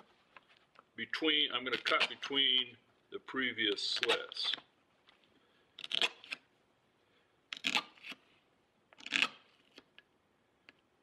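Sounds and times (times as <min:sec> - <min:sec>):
knife slicing through tape: 0:05.8 - 0:06.4, 0:07.5 - 0:08.2, 0:09.0 - 0:09.9.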